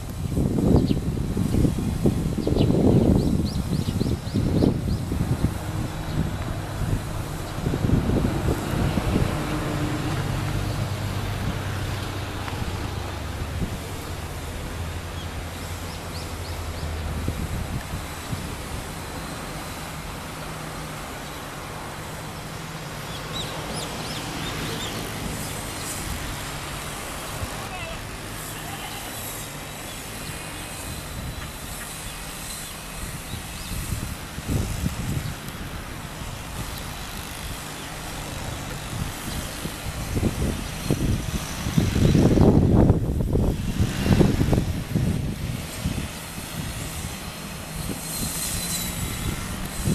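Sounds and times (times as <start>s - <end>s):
distant engine hum: 0.0s - 49.9s
even hiss: 0.0s - 49.9s
wind noise: 0.0s - 49.9s.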